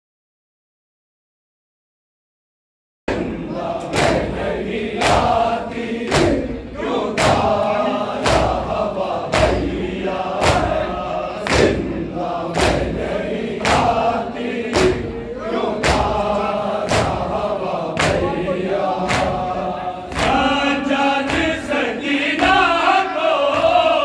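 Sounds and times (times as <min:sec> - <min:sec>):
chest beating slaps: 0:03.1 - 0:14.1, 0:14.7 - 0:15.2, 0:15.8 - 0:18.3, 0:19.0 - 0:20.5
men chanting a lament: 0:03.1 - 0:24.0.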